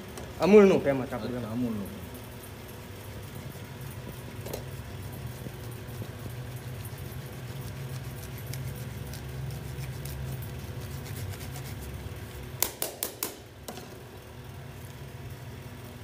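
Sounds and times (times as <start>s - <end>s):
cheese grater rasping: 2.5s - 12.0s.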